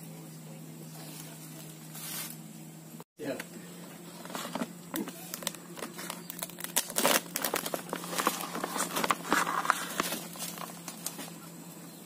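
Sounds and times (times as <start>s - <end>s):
plastic sheet crinkling: 4.2s - 11.4s.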